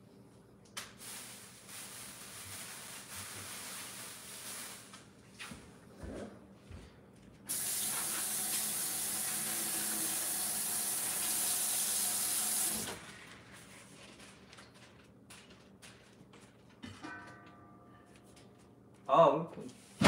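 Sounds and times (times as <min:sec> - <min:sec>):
faucet running: 0:07.5 - 0:13.0.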